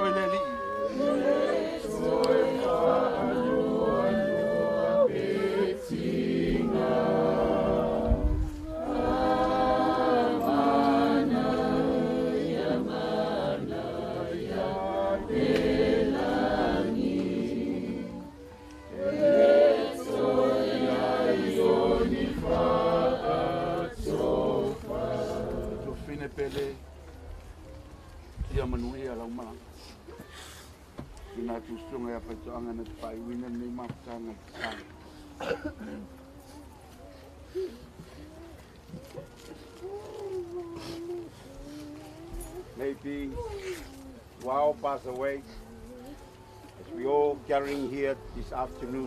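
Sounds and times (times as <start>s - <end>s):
crowd singing a hymn: 0.0s - 26.8s, 46.7s - 49.0s.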